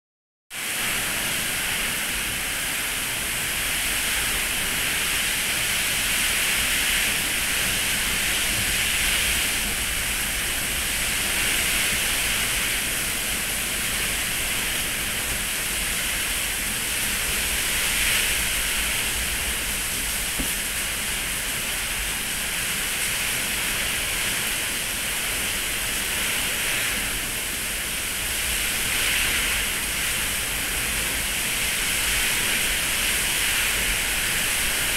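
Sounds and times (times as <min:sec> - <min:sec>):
gusting wind: 0:00.6 - 0:34.9
heavy rain: 0:00.6 - 0:34.9.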